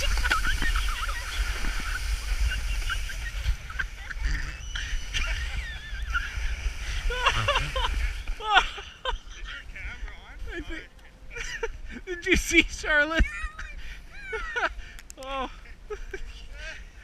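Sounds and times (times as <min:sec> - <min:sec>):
wind rumble on microphone: 0:00.0 - 0:08.5.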